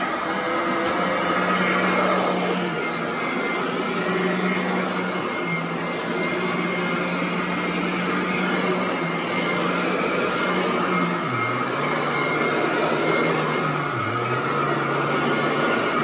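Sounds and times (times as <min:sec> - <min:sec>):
upright vacuum running on carpet: 0:00.0 - 0:16.0.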